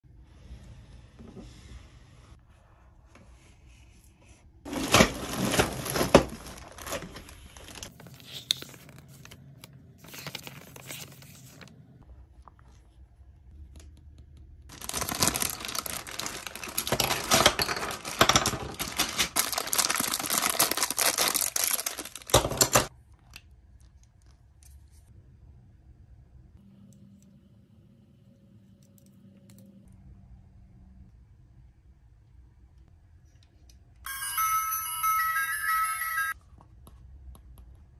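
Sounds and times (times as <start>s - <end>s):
plastic bags tearing and crinkling: 4.7s - 8.7s, 14.7s - 22.9s.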